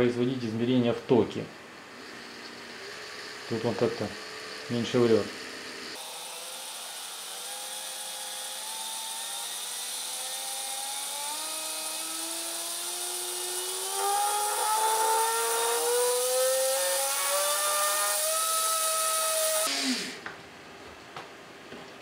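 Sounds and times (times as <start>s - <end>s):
whine rising in pitch: 12.4s - 20.2s.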